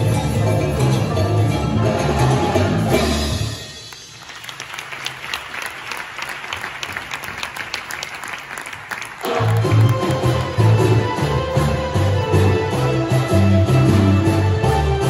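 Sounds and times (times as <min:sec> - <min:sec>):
show music: 0:00.0 - 0:15.0
audience applauding: 0:03.9 - 0:11.0.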